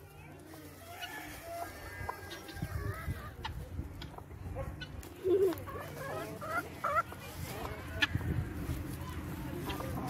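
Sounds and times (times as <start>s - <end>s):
chickens clucking softly: 0.0s - 10.0s.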